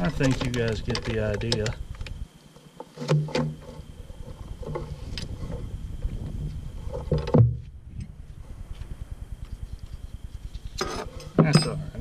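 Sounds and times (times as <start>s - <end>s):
low rumble: 3.9s - 10.8s.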